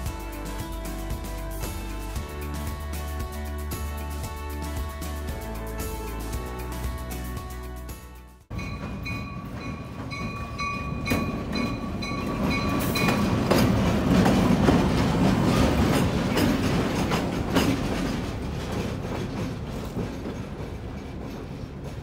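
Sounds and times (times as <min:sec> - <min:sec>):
diesel locomotive engine running: 0:00.0 - 0:22.0
locomotive bell ringing: 0:08.5 - 0:14.5
wheels clicking over rail joints: 0:08.5 - 0:22.0.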